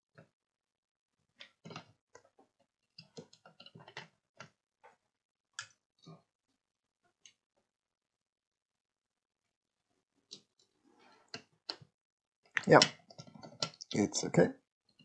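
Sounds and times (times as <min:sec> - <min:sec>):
faint clicks and taps of handling: 0:01.3 - 0:06.3.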